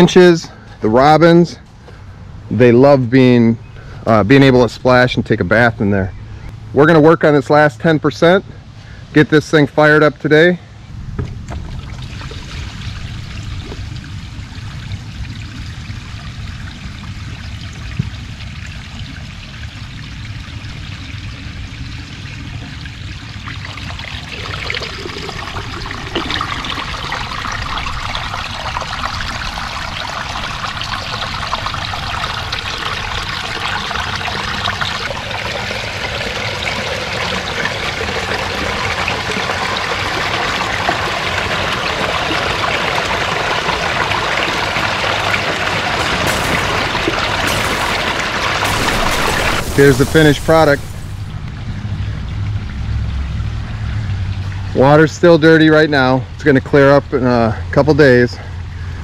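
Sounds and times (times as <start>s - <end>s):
water trickling: 11.6s - 51.4s
water splashing over rocks: 37.3s - 51.4s.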